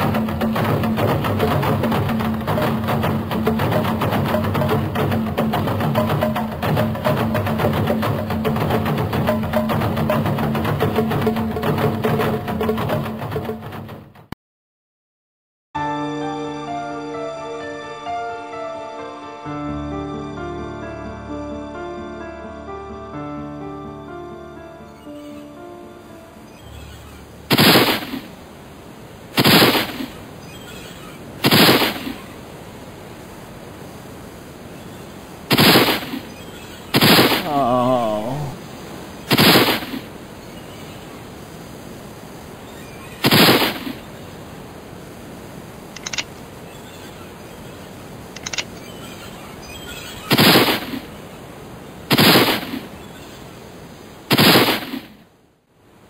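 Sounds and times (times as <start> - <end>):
steady hiss: 25.3 - 56.0
loud gunshots: 27.5 - 28.3, 29.4 - 30.1, 31.4 - 32.2, 35.5 - 36.2, 37.0 - 37.5, 39.3 - 40.0, 43.2 - 44.0, 50.3 - 51.0, 52.1 - 52.8, 54.3 - 55.1.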